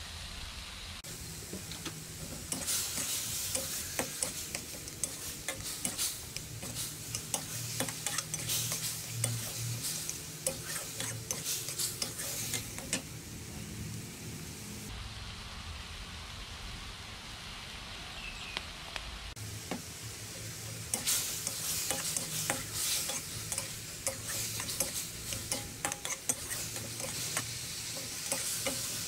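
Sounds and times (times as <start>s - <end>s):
frying sizzle: 0.0s - 29.0s
metal spatula scraping wok: 1.6s - 13.2s, 20.3s - 29.0s.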